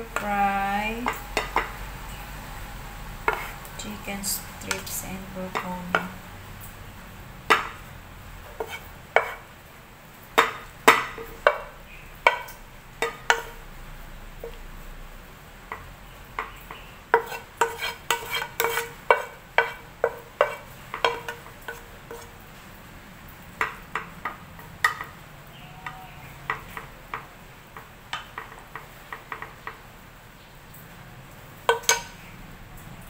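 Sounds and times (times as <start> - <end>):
wooden spatula scraping wok: 0.0 - 6.6, 7.4 - 9.5, 10.3 - 13.7, 15.7 - 22.7.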